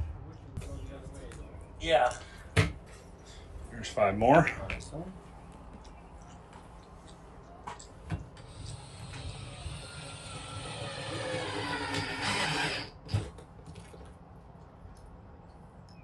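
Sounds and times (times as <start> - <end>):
cordless drill motor whining: 8.4 - 13.2.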